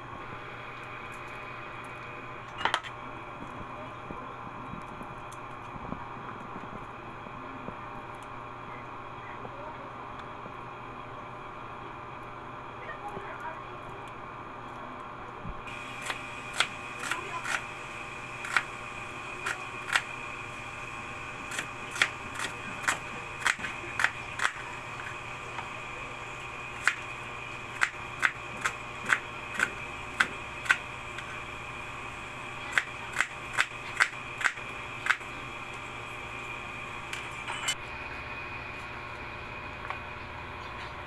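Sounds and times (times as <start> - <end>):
knife slicing onions on cutting board: 16.0 - 17.7, 21.5 - 24.6, 27.8 - 30.8.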